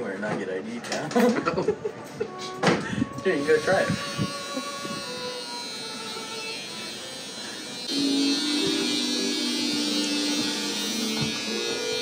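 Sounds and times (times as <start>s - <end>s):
electric hair clippers buzzing: 3.4s - 12.0s.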